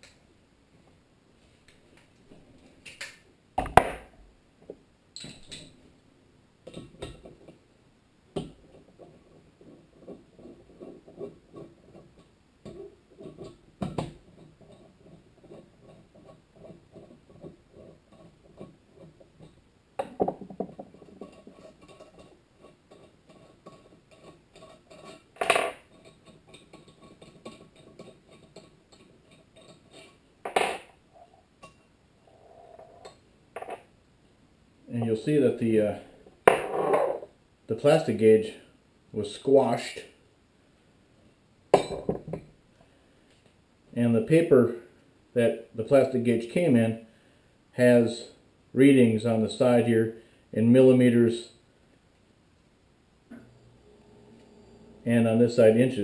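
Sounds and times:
tools knocking on wooden table: 20.0 - 21.0, 41.8 - 42.5.

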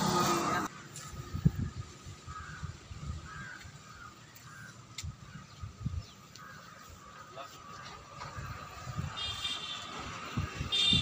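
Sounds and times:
crows cawing: 2.2 - 5.5, 6.3 - 7.4.

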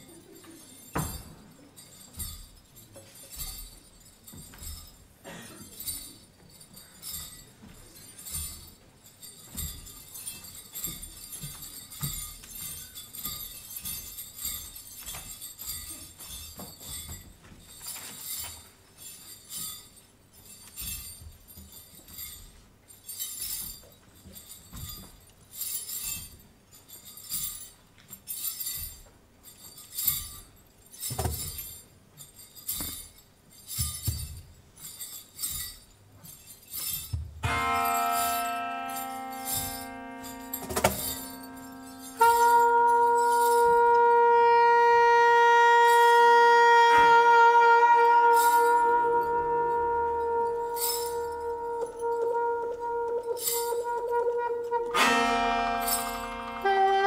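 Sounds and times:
small bells jingling: 0.0 - 44.9, 45.8 - 57.0
held instrumental note: 37.4 - 57.0.

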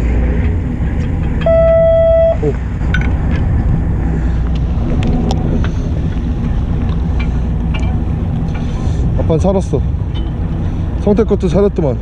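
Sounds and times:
boat engine humming: 0.0 - 12.0
steady beep: 1.4 - 2.5.

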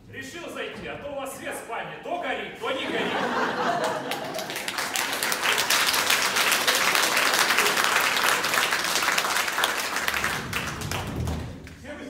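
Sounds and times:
audience applauding: 3.2 - 11.8.

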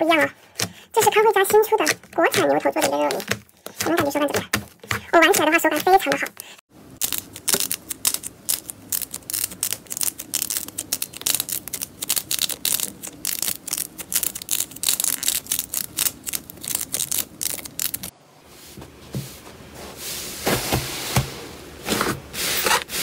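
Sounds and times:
slime popping and crackling: 7.0 - 18.1.

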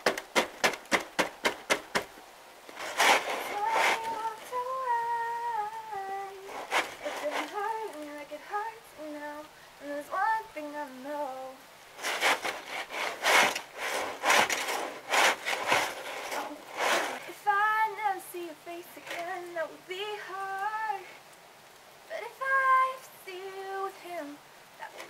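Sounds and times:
snow shovel scraping wooden deck: 2.7 - 4.4, 6.5 - 7.7, 12.0 - 17.3
woman singing unaccompanied: 3.2 - 11.7, 16.3 - 21.2, 22.1 - 25.0.

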